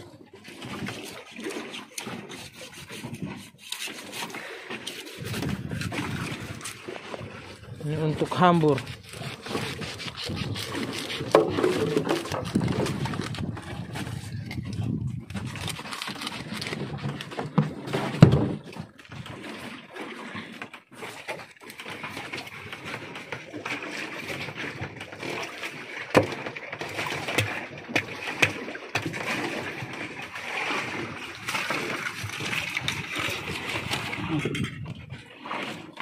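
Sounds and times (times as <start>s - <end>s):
knife cutting fish: 9.0s - 12.4s.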